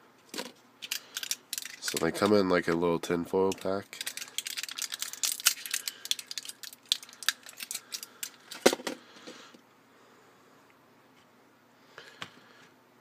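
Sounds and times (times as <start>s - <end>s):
blister pack crinkling and clicking: 0.8s - 2.4s, 3.4s - 8.6s.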